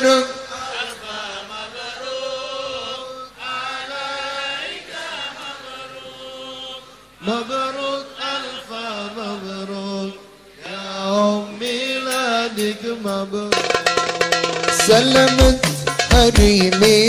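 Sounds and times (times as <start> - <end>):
person singing chant-like notes: 14.6 - 17.0.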